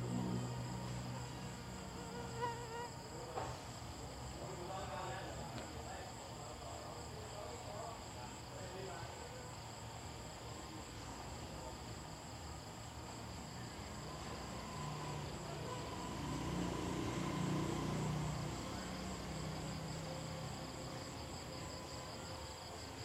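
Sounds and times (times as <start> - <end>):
faint low sound: 0.0 - 2.2
crickets trilling: 0.0 - 23.0.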